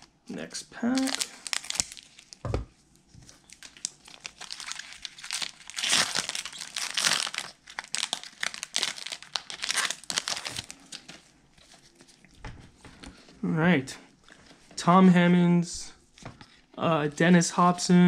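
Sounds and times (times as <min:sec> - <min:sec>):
wrapper crinkling and rustling: 0:00.9 - 0:12.4.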